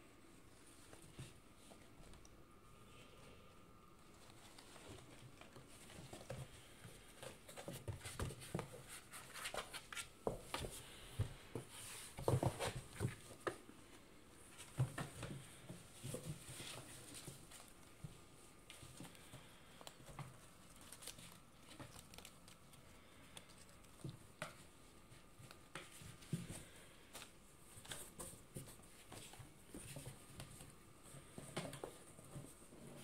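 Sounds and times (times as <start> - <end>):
paws scratching on cardboard: 4.1 - 10.8.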